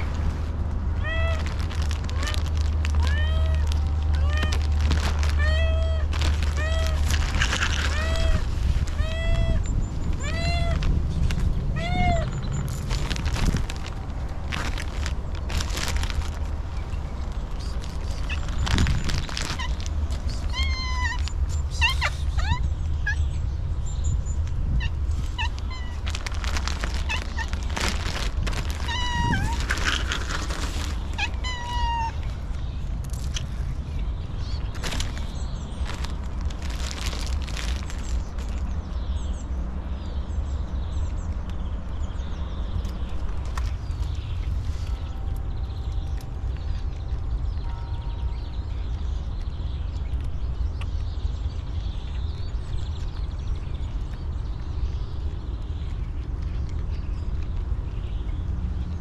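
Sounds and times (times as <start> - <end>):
rustling: 0.0 - 22.5, 24.4 - 38.7
cat meowing: 1.0 - 10.9, 11.8 - 12.3, 20.4 - 22.6, 28.8 - 30.1, 31.1 - 32.2.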